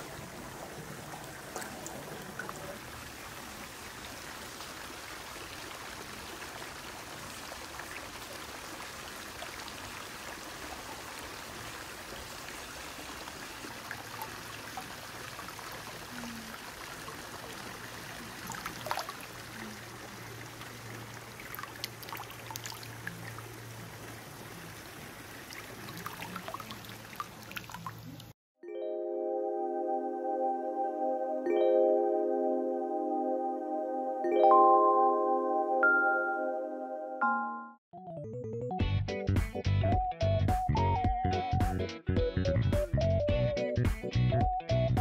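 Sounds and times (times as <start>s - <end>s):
small water splashes: 0.0s - 28.4s
water pouring in thin stream: 0.0s - 28.4s.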